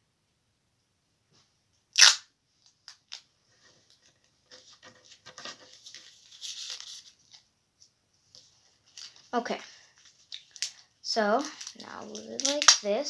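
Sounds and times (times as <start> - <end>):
paper rustling and crinkling: 3.5 - 7.5, 8.3 - 13.0.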